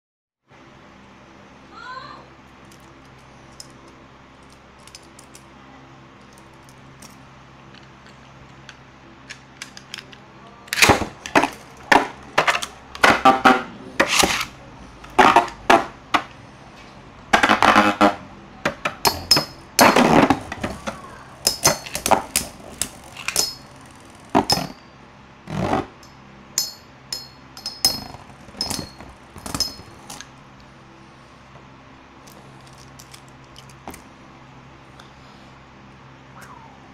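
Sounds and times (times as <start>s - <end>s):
low steady hum: 0.5s - 36.9s
spinning tops clacking metallically: 19.0s - 24.9s, 26.0s - 30.3s.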